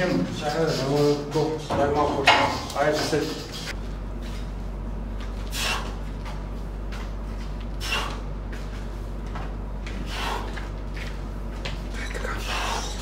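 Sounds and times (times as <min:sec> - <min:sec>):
steady low hum: 0:00.0 - 0:13.0
man breathing with hissing breaths: 0:05.3 - 0:06.1, 0:07.7 - 0:09.1, 0:09.9 - 0:10.8, 0:12.3 - 0:13.0.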